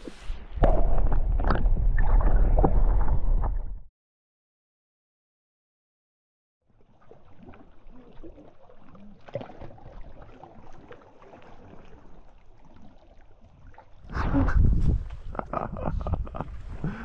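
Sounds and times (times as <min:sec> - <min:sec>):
small waves lapping: 0:06.7 - 0:15.3
light wind: 0:14.0 - 0:17.0.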